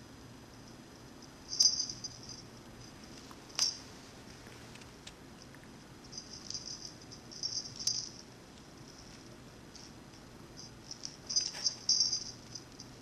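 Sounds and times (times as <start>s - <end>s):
small bell jingling: 0.6s - 3.9s, 6.0s - 13.0s.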